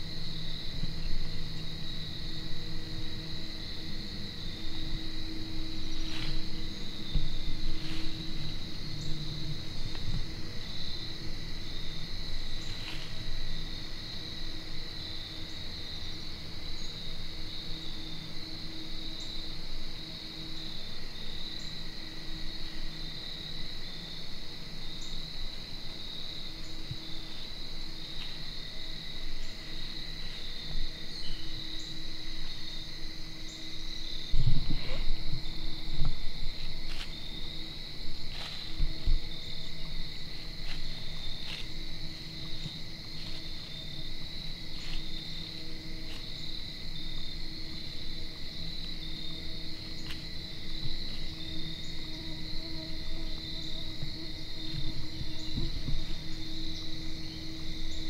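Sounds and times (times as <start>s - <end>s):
crickets and insects trilling: 0.0s - 58.0s.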